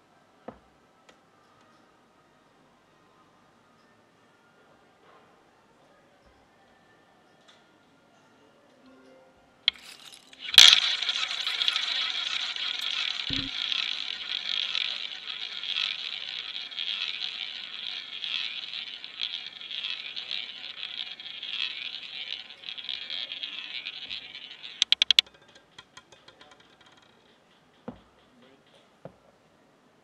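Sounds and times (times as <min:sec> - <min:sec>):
roulette ball whirring: 0:09.7 - 0:28.2
roulette ball clicks: 0:09.7 - 0:28.3.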